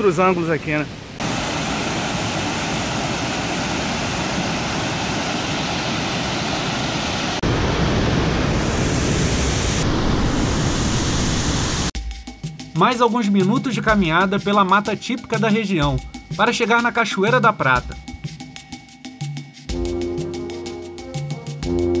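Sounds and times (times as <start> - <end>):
waterfall rushing: 0.0 - 11.9.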